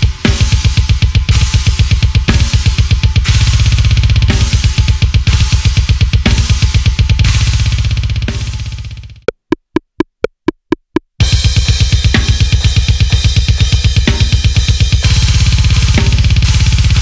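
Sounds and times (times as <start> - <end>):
drum kit playing fast metal: 0.0 - 17.0
count-in clicks: 9.2 - 11.2.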